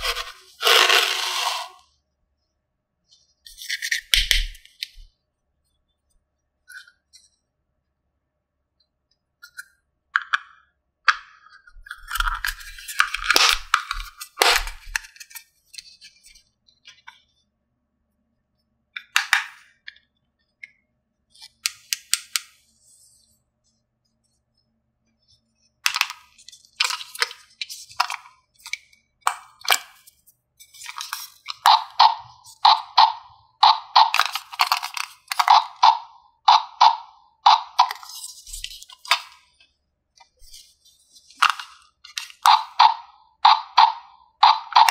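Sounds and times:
plastic toy pieces clicking: 11.8s - 15.4s, 30.8s - 39.4s, 41.4s - 44.9s.

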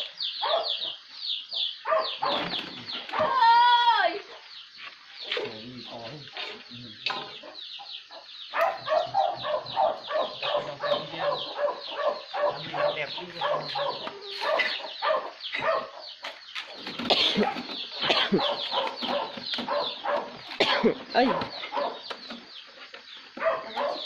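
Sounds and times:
chickens clucking: 0.0s - 3.4s, 4.2s - 24.0s.

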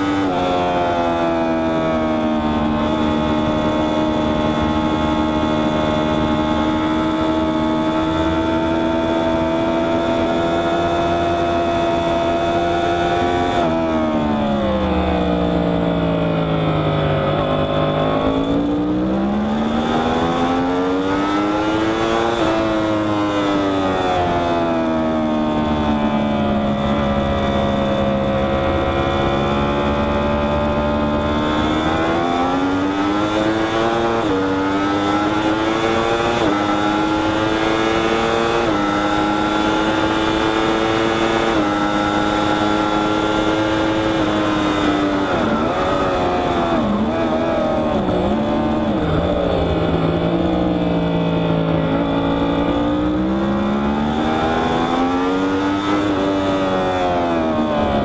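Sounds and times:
motorcycle engine at speed: 0.0s - 58.0s
wind rush: 13.6s - 21.8s, 44.9s - 53.5s.

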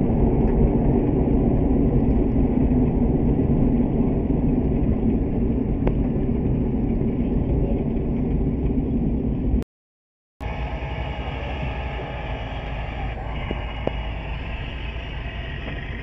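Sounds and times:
truck engine and road noise: 10.4s - 16.0s.

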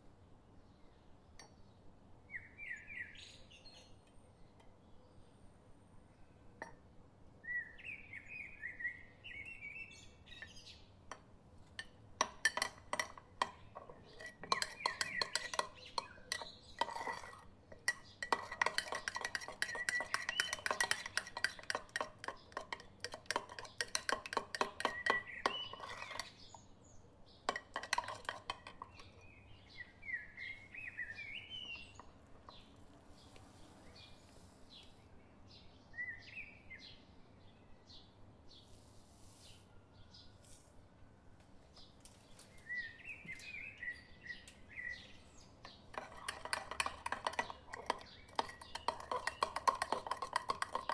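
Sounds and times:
spoon tapping mug: 11.1s - 26.4s, 27.5s - 29.2s, 45.6s - 50.9s
metal spoon clinking in mug: 11.1s - 26.6s, 27.5s - 29.2s, 45.6s - 50.9s.

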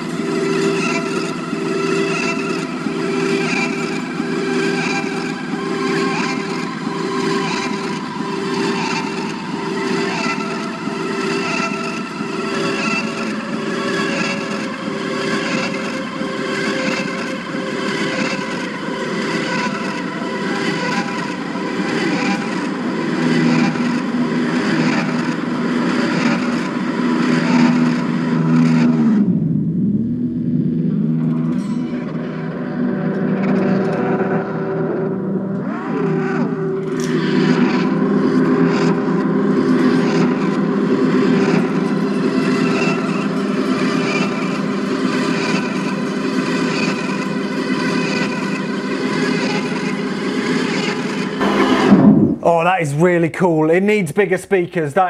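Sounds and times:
electric guitar with delay: 51.4s - 52.6s
steady low note: 51.4s - 52.9s.

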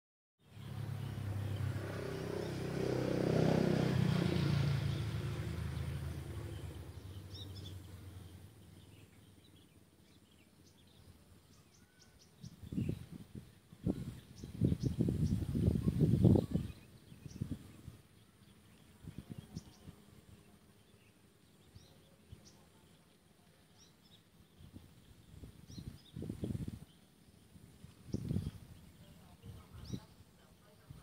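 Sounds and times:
passing vehicle engine hum: 0.5s - 9.9s
small bird chirping: 4.7s - 13.2s, 13.8s - 30.9s.

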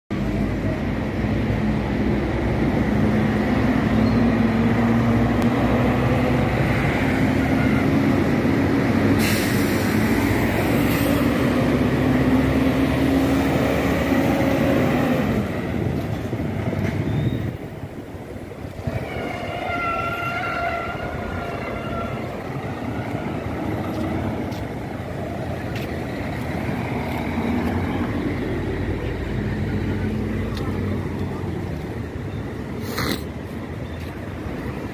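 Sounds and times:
bus diesel engine: 0.1s - 34.9s
street traffic: 0.1s - 34.9s
hiss burst: 9.2s - 11.1s.

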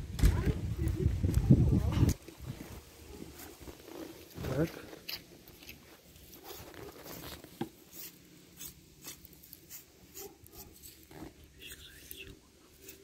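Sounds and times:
knife cutting meat: 7.9s - 11.1s.

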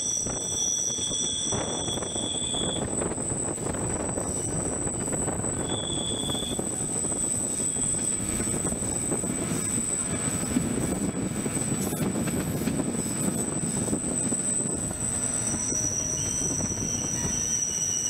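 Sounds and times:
high-pitched wheel squeal: 0.0s - 10.9s, 11.5s - 18.0s
train rumbling: 0.0s - 18.0s.

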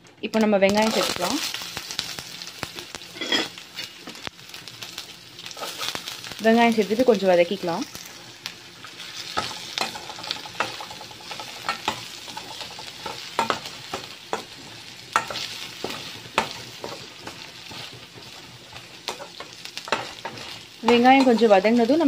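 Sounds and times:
onions sizzling in hot oil: 0.2s - 22.0s
spatula scraping metal pan: 3.2s - 3.5s.

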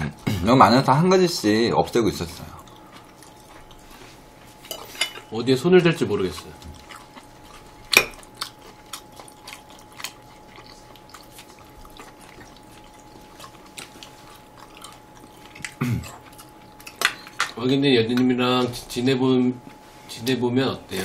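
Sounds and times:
food being chewed: 0.2s - 18.9s
utensils clicking against dishes: 16.0s - 18.4s.

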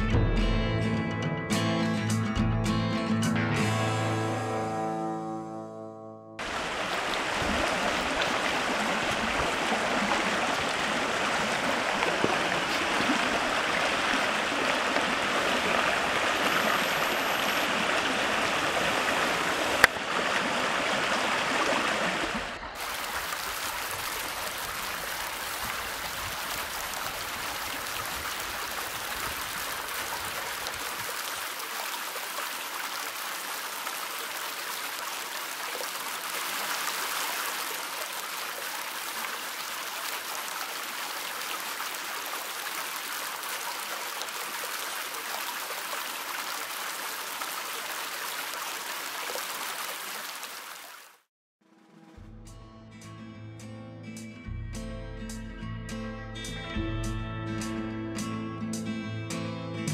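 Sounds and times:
stream rushing over rocks: 6.4s - 51.3s.

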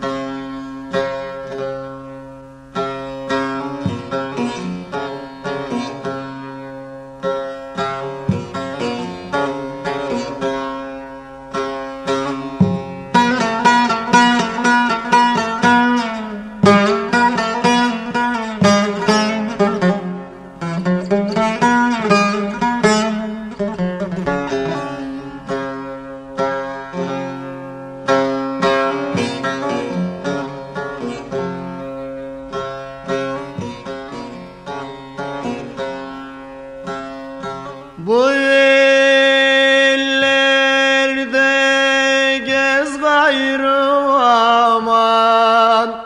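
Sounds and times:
plucked lute notes: 0.0s - 46.0s
man singing long held note: 38.0s - 46.0s.

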